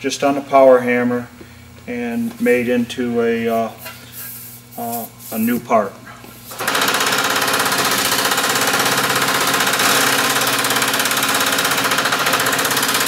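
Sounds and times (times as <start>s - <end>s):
power hammer pounding steel: 6.5s - 13.0s.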